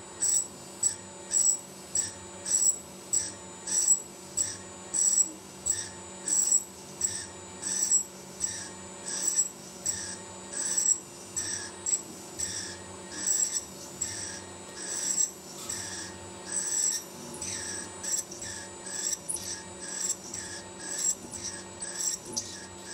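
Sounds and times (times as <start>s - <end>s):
drill rasping into aluminium: 12.4s - 22.9s.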